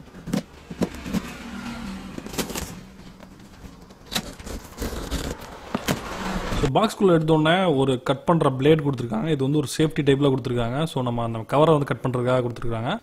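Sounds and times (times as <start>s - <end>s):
packaging tearing off a box: 4.1s - 6.1s.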